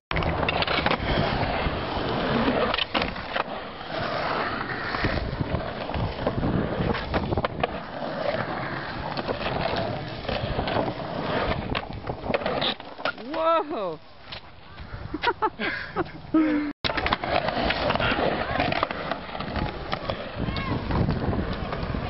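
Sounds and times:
skateboard clacks: 0:00.1 - 0:03.6, 0:16.8 - 0:22.0
skateboard wheels rolling on concrete: 0:00.1 - 0:22.0.

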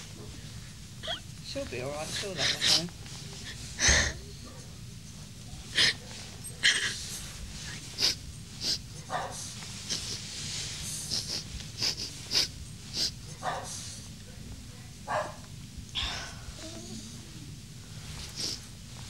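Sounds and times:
small dog sniffing and snorting: 0:05.7 - 0:14.1, 0:18.1 - 0:18.7.

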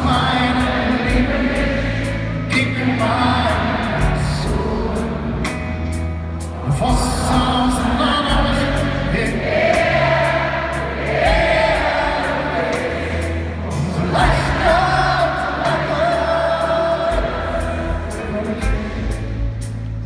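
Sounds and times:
double bass: 0:00.0 - 0:20.0
piano: 0:00.0 - 0:20.0.

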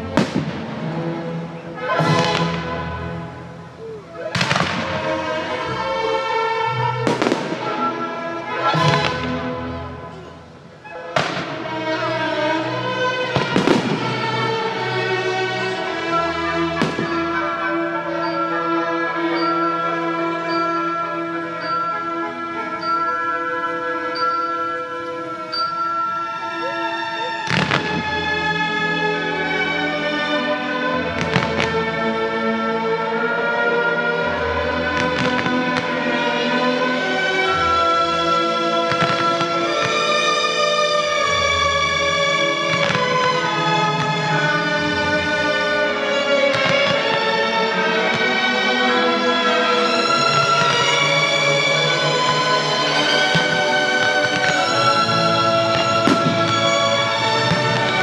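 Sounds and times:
fireworks bangs: 0:00.0 - 0:01.2, 0:01.8 - 0:18.5, 0:27.3 - 0:28.6, 0:31.0 - 0:32.0, 0:34.7 - 0:58.0
music with long held notes: 0:00.0 - 0:58.0.

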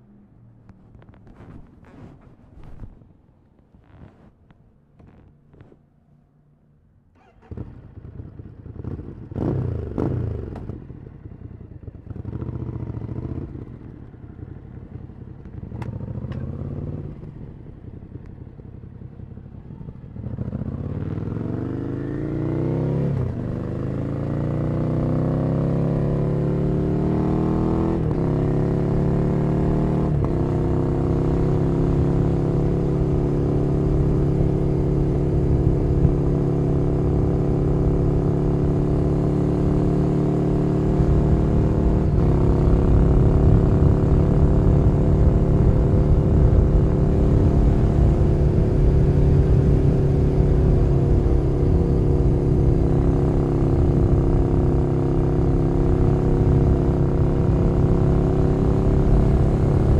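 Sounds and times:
motorcycle engine idling and revving: 0:00.0 - 0:03.0, 0:06.4 - 0:59.9
motorcycle accelerating: 0:07.1 - 0:59.9.

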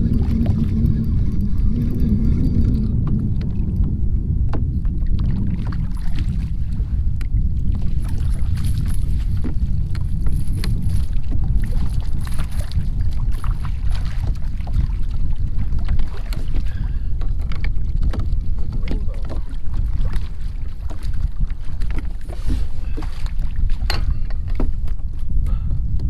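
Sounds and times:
waves lapping against kayak hull: 0:00.0 - 0:26.0
wind noise on microphone: 0:00.0 - 0:26.0
light knocks and splashes: 0:07.7 - 0:25.2.

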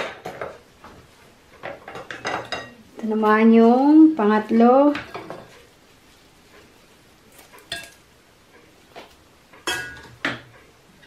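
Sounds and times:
metal spoon clinking on plate: 0:07.6 - 0:08.0, 0:09.6 - 0:10.4.

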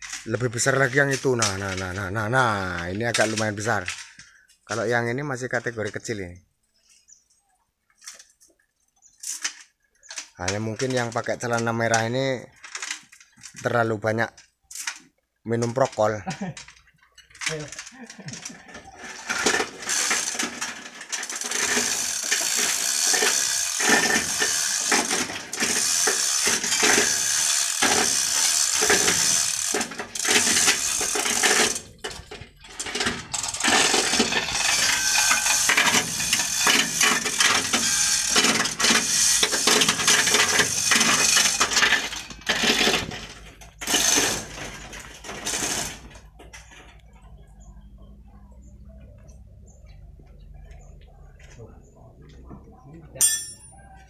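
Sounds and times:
hoist chain rattling and clinking: 0:16.3 - 0:47.1.

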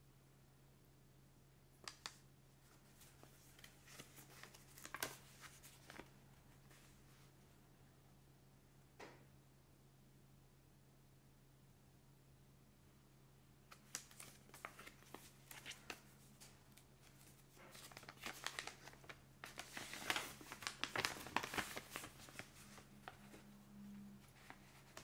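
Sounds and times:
paper rustling and crinkling: 0:01.9 - 0:07.2, 0:13.7 - 0:23.6, 0:24.2 - 0:25.0.

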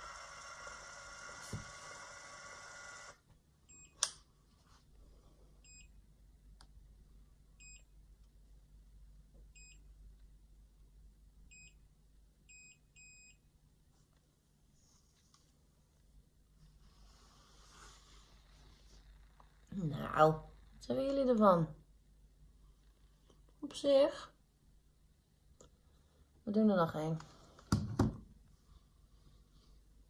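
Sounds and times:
hair curler motor whining: 0:00.0 - 0:03.2.

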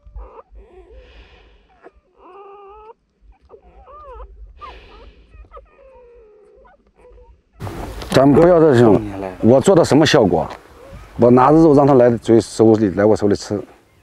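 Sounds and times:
wolf pups squealing: 0:00.0 - 0:09.6.

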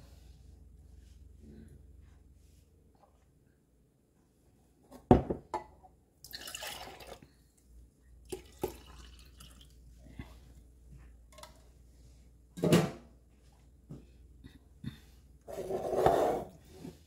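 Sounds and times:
juice pouring and dripping: 0:06.2 - 0:07.6, 0:08.2 - 0:10.6.

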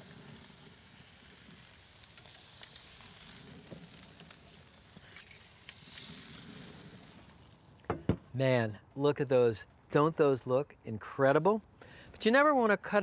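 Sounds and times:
steaks sizzling on grill: 0:00.0 - 0:07.8
burning branches crackling: 0:00.0 - 0:10.2.

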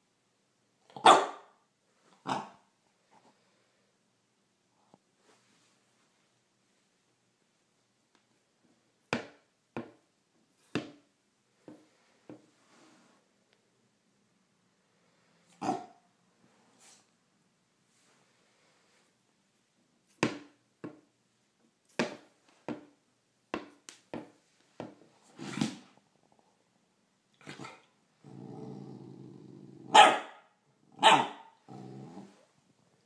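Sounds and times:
puppy barking: 0:00.9 - 0:01.6, 0:02.2 - 0:02.6, 0:15.6 - 0:16.0, 0:29.9 - 0:31.6
puppy growling: 0:27.4 - 0:30.0, 0:31.6 - 0:32.5.

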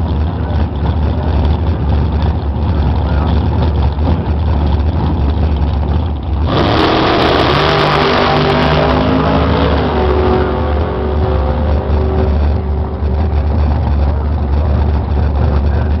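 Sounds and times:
dragster engine roaring: 0:00.0 - 0:16.0.

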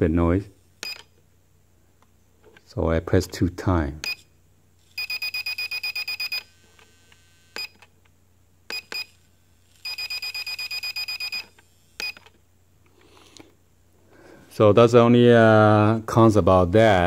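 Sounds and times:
electronic beeping: 0:04.9 - 0:06.5, 0:09.8 - 0:12.2.

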